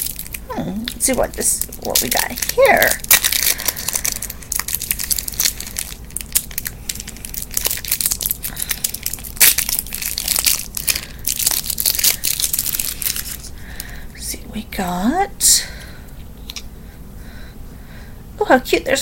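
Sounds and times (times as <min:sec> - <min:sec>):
packaging crinkling: 0:00.0 - 0:14.0.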